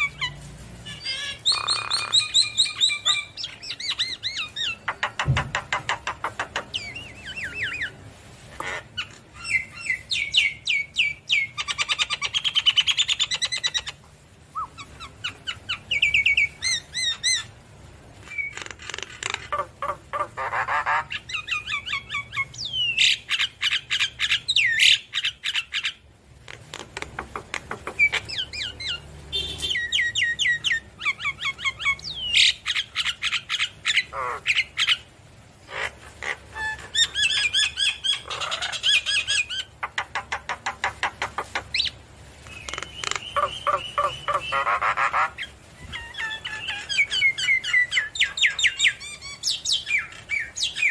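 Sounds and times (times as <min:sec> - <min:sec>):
bird singing chirps and whistles: 0:01.0 - 0:05.3, 0:14.5 - 0:15.1, 0:42.5 - 0:44.7.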